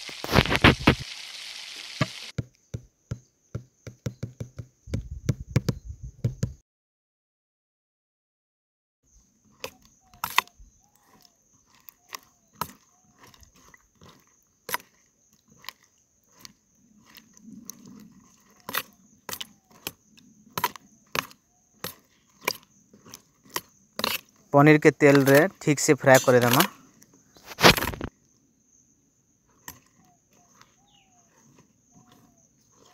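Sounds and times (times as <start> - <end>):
food frying in hot oil: 0.0 - 2.3.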